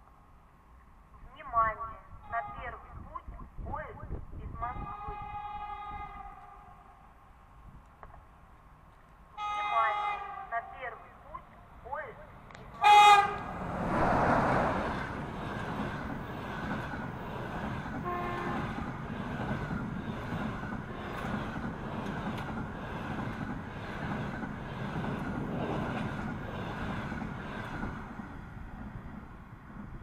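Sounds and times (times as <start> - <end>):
locomotive horn blast: 4.7 - 6.8, 9.4 - 11.0, 12.8 - 13.7, 18.0 - 18.9
train coaches rumbling past: 11.7 - 30.0.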